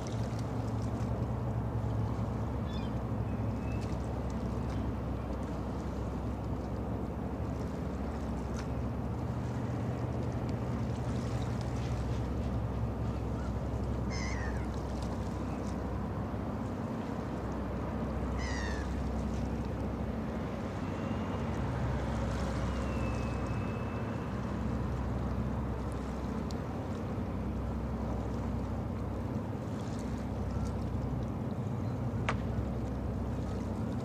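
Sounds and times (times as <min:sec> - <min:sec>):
ship engines droning: 0:00.0 - 0:34.0
gull calls: 0:13.4 - 0:14.7, 0:18.3 - 0:19.0.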